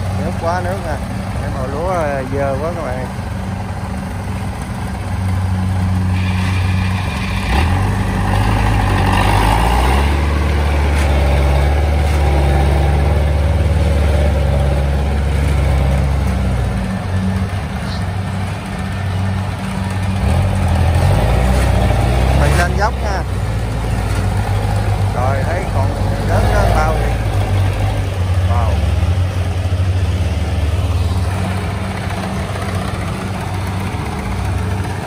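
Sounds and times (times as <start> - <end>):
tracked vehicle engine running: 0.0 - 35.0.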